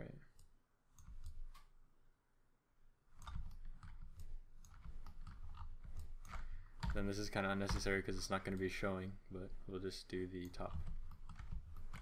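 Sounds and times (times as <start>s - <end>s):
computer mouse clicks: 0.3s - 1.8s, 3.1s - 8.8s, 10.4s - 12.0s.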